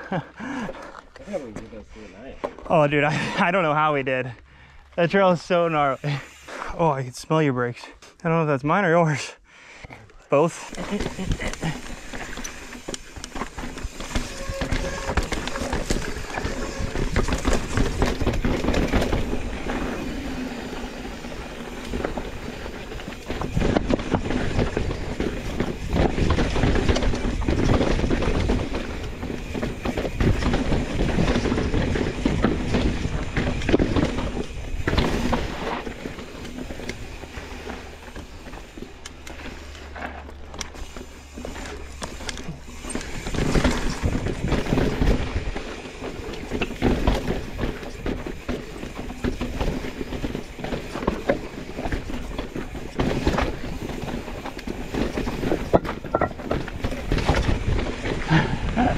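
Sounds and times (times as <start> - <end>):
bike tyre and riding noise: 0.0 - 7.3, 10.0 - 58.9
bike knocking on rocks: 10.9 - 20.5, 21.1 - 38.8, 39.4 - 58.4.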